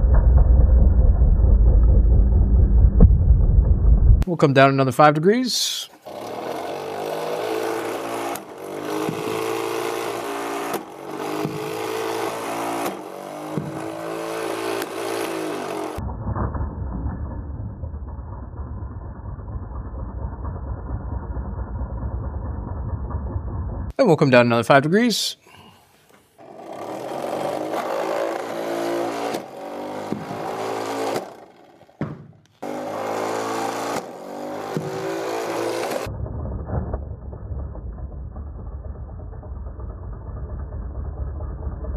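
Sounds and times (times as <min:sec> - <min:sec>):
muffled low rumble: 0:00.0 - 0:04.2
flywheel motor whine: 0:06.0 - 0:16.0, 0:26.4 - 0:36.1
ball shot thud: 0:12.8 - 0:13.9, 0:32.0 - 0:32.5
sharp knocks of ball launching: 0:32.0 - 0:32.4.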